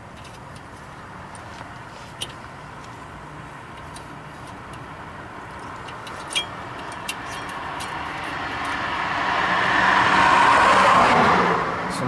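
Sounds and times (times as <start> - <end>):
vehicle passing by: 6.6 - 12.0.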